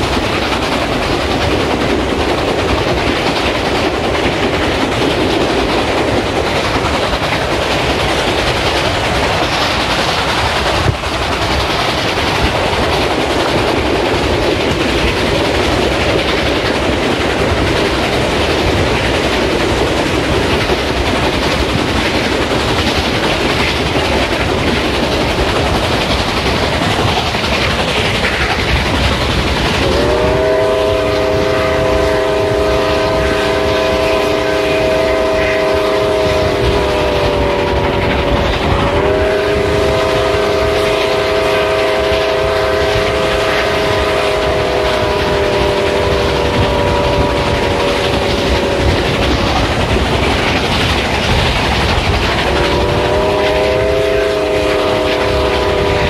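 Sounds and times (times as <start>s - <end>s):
steam train rumble and rail clatter: 0.0s - 56.0s
locomotive chime whistle: 29.9s - 37.9s, 52.5s - 56.0s.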